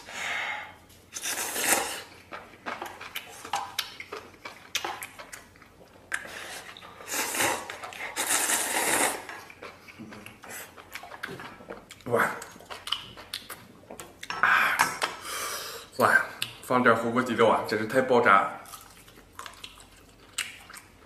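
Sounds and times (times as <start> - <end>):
person slurping noodles: 1.1 - 2.1, 6.4 - 9.3
chewing: 1.2 - 14.4, 18.6 - 21.0.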